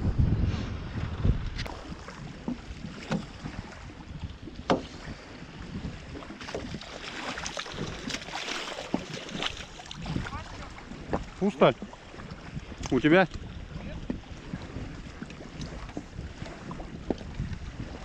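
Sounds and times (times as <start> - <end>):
water splashing and dripping: 6.2 - 13.5.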